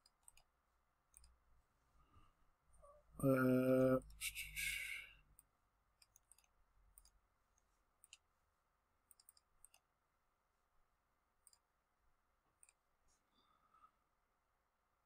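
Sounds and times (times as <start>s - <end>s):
computer mouse and keyboard clicks: 0.0s - 0.5s, 1.1s - 1.4s, 5.4s - 8.3s, 9.1s - 9.9s, 12.6s - 12.8s
breath: 4.6s - 5.2s.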